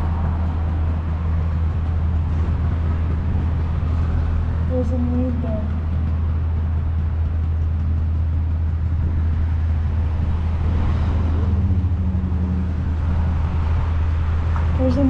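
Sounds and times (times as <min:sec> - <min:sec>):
steady low hum: 0:00.0 - 0:15.0
car passing by: 0:09.0 - 0:15.0.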